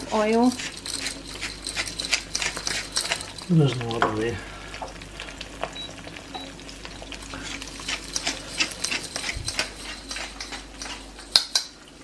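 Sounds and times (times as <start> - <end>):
hand mill grinding: 0.0 - 4.0, 7.4 - 11.4
eggs sizzling in a frying pan: 0.0 - 12.0.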